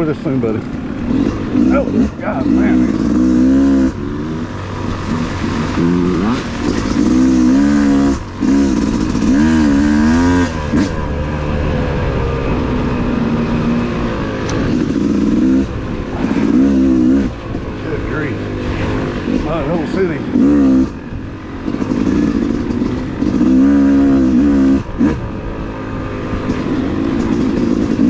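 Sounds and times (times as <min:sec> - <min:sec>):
dirt bike engine revving: 0:00.0 - 0:28.0.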